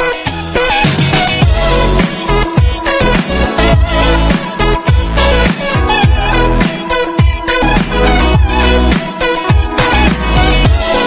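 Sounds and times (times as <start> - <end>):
electronic music: 0.0 - 11.0
deep bass drum: 1.0 - 6.5, 7.2 - 8.9.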